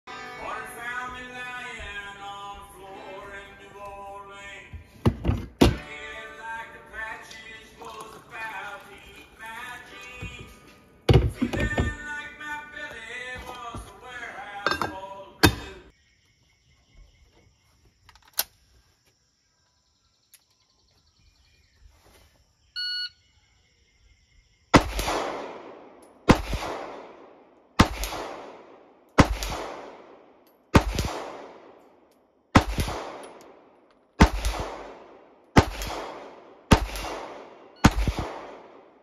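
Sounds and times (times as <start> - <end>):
short electronic beep: 22.8 - 23.2
gunshots with echo: 24.8 - 31.8, 32.5 - 33.6, 34.2 - 39.0.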